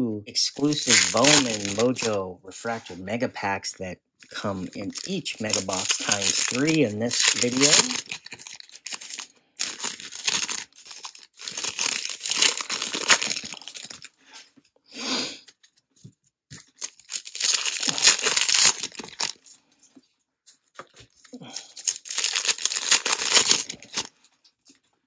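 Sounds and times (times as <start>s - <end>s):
plastic wrapper crinkling and tearing: 0.5s - 2.2s, 4.2s - 14.2s, 16.5s - 19.6s, 20.7s - 24.8s.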